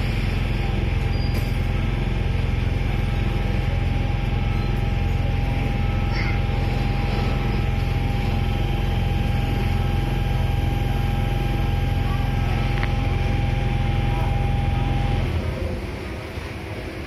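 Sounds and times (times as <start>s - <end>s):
constant high-pitched whine: 0.0s - 17.0s
low rumble of trains: 0.0s - 17.0s.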